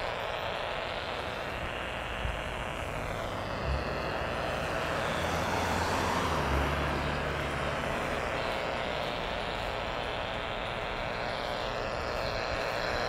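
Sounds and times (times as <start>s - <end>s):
radio static: 0.0s - 13.0s
car passing: 2.7s - 11.7s.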